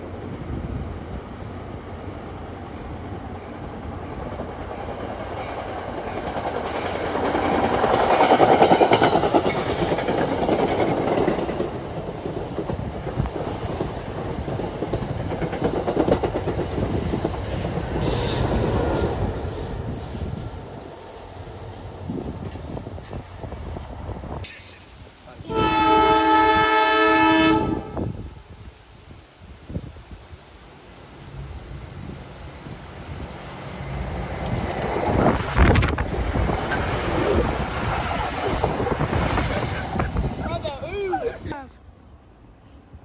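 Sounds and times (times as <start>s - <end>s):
train wheels rumbling on rails: 0.0s - 24.8s, 27.5s - 41.7s
high wheel squeal: 36.7s - 41.4s.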